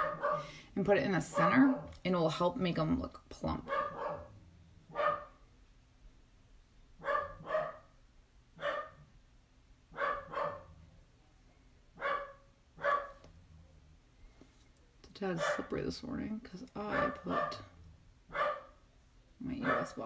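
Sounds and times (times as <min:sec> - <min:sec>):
dog barking: 0:00.0 - 0:00.5, 0:03.6 - 0:04.3, 0:04.9 - 0:05.4, 0:07.0 - 0:07.9, 0:08.6 - 0:09.0, 0:09.9 - 0:10.8, 0:12.0 - 0:13.2, 0:15.4 - 0:15.7, 0:16.9 - 0:17.7, 0:18.3 - 0:18.8, 0:19.6 - 0:20.0.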